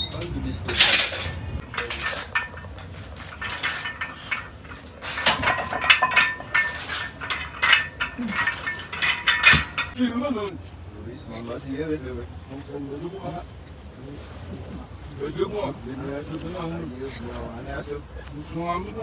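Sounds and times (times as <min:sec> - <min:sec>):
weight plates clinking on barbell: 0:00.0 - 0:10.0.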